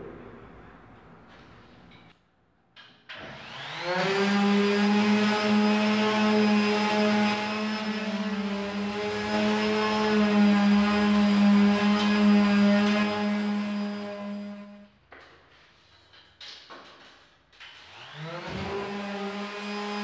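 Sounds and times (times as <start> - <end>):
electric sander whining: 3.3 - 14.8, 17.9 - 20.0.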